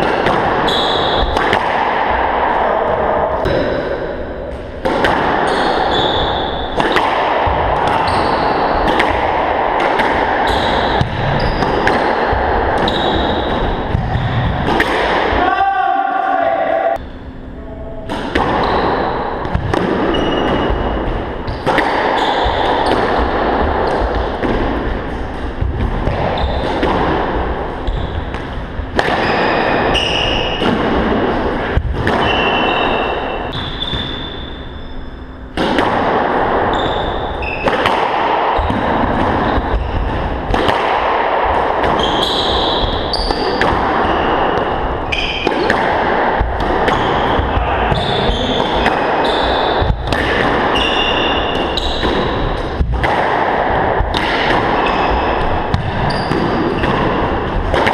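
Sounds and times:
squash ball smacking rackets and walls: 0.0 - 15.5, 18.0 - 57.9.

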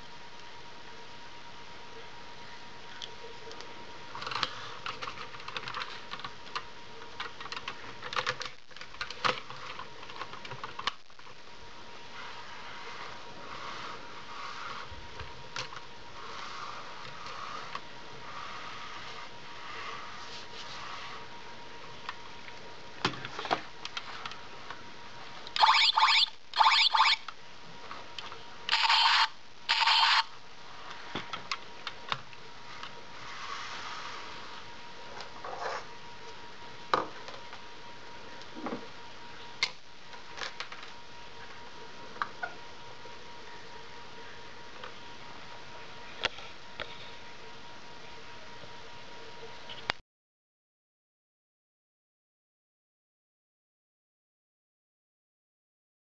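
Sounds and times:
toy electronic noisy blasts: 25.6 - 27.2, 28.7 - 30.3.

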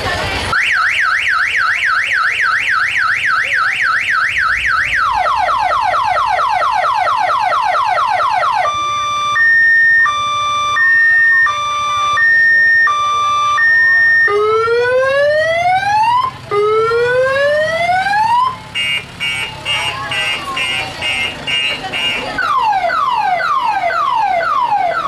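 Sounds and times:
electronic bus horn warbling: 8.5 - 14.4, 18.8 - 22.5.

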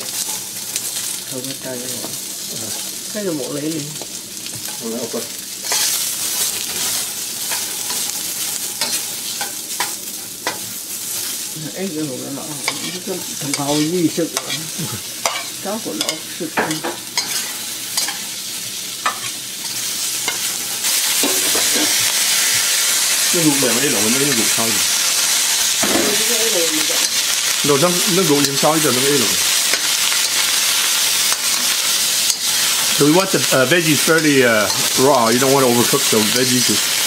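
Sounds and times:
vegetables sizzling in oil: 0.0 - 37.0
metal spatula scraping wok: 5.6 - 6.0, 12.6 - 18.3.

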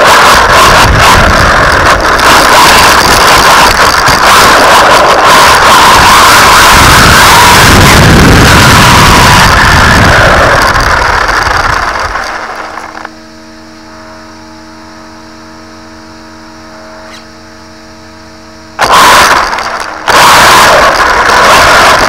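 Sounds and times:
electric rc truck motor and tyres: 0.0 - 13.1, 18.8 - 22.0
throttle bursts: 0.0 - 14.2, 18.5 - 22.0
steady multi-tone hum: 0.0 - 22.0.

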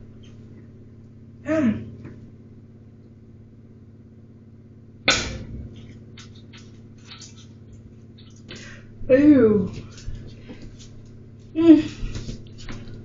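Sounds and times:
low hum: 0.0 - 13.0
egg smashed into frying pan: 5.1 - 5.5.

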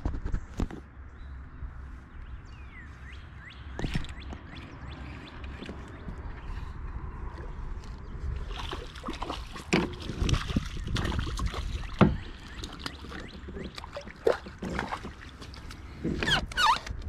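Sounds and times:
steady low rumble: 0.0 - 12.8
water splashing beside kayak: 8.2 - 16.8.

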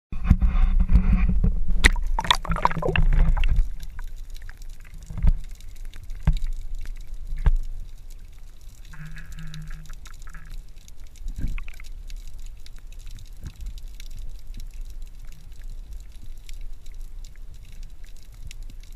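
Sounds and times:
muffled underwater rumble: 0.1 - 18.9
sharp knocks underwater: 0.2 - 4.1, 5.0 - 5.5, 6.2 - 6.5
splash into water: 1.8 - 4.0.

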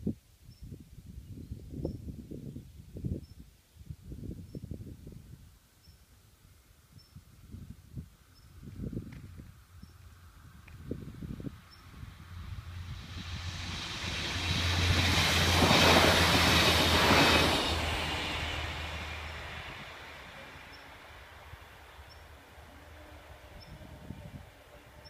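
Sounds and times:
diesel railcar engine hum: 9.5 - 25.0
train wheels on rails: 12.6 - 22.6.

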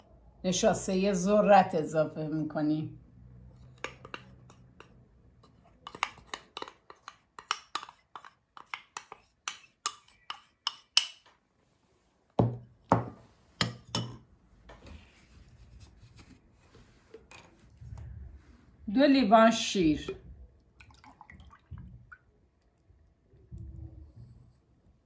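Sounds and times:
spoon clinking against ceramic bowl: 13.6 - 14.2.

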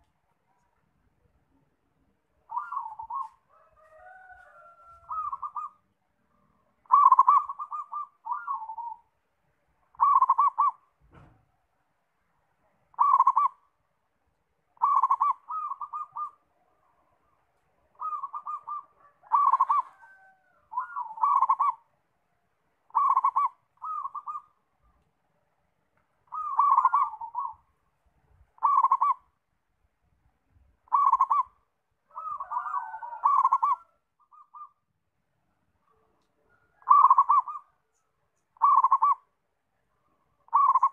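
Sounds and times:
dove cooing trills: 2.4 - 5.8, 6.8 - 9.1, 9.9 - 10.9, 12.9 - 13.7, 14.8 - 16.5, 17.9 - 21.9, 22.9 - 25.0, 26.2 - 27.7, 28.6 - 29.4, 30.8 - 34.8, 36.0 - 38.0, 38.6 - 39.3, 40.3 - 40.9.

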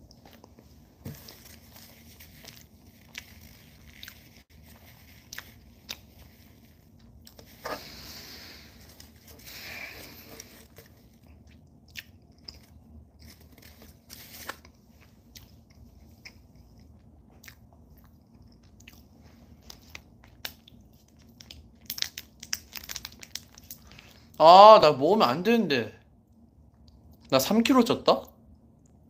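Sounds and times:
chewing soft food: 0.0 - 24.4, 26.2 - 27.3
plastic wrapper crinkling: 19.7 - 24.2.

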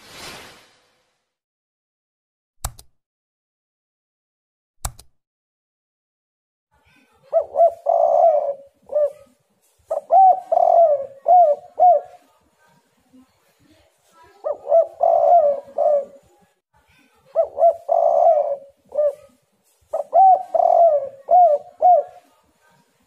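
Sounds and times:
sharp clicks: 2.6 - 3.0, 4.8 - 5.2
dove cooing: 7.3 - 12.3, 14.4 - 16.3, 17.3 - 22.4.

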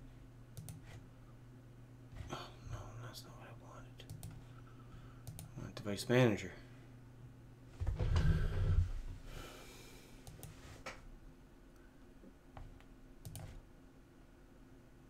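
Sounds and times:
computer mouse clicks: 0.6 - 1.0, 4.0 - 4.4, 5.2 - 5.5, 10.2 - 11.0, 12.7 - 13.6.

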